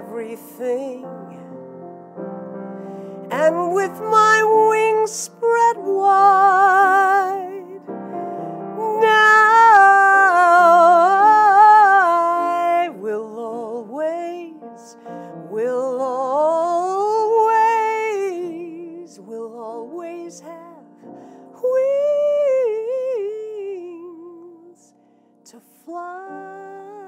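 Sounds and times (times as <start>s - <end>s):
woman singing slow song: 0.0s - 1.5s, 3.3s - 8.0s, 8.6s - 20.9s, 21.5s - 27.0s
grand piano: 0.0s - 27.0s.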